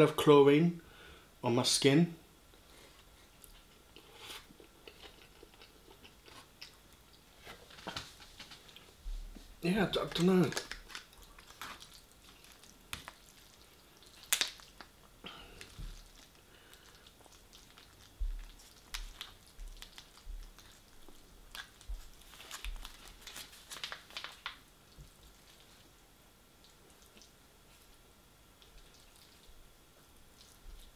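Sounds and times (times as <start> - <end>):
chewing noodles: 10.6 - 25.9, 28.6 - 29.6, 30.3 - 30.9.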